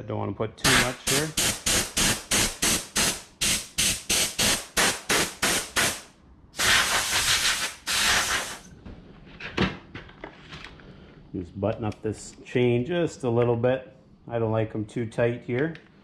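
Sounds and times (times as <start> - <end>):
air blow gun puffs: 0.6 - 8.7.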